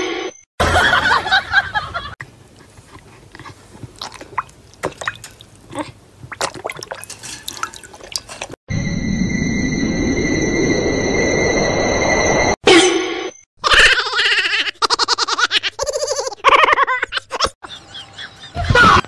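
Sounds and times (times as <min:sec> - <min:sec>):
dog lapping water: 0:02.5 - 0:08.6.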